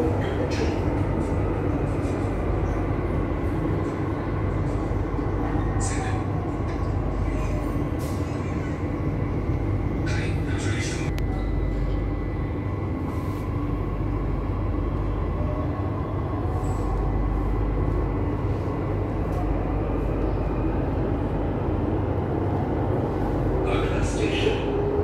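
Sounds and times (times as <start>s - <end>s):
train running low rumble: 0.0s - 25.0s.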